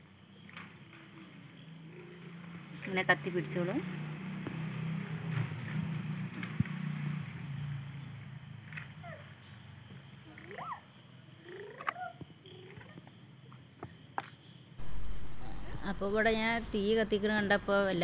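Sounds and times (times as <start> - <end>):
fire crackling: 14.8 - 18.0
low steady hum: 14.8 - 18.0.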